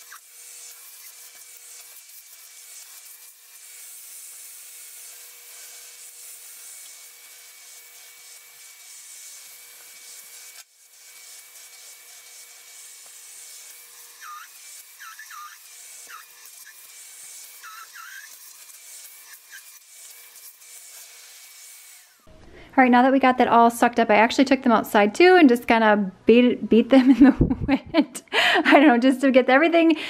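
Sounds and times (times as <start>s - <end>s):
vacuum nozzle rubbing on fabric: 0.0s - 22.3s
stick vacuum whining and hissing: 0.0s - 22.6s.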